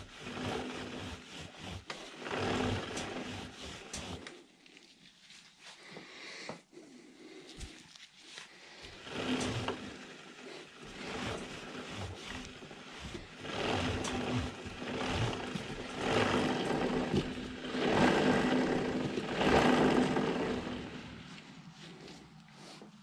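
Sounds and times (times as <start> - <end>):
rag scrubbing a moving chain: 0.0 - 4.5, 8.8 - 22.1.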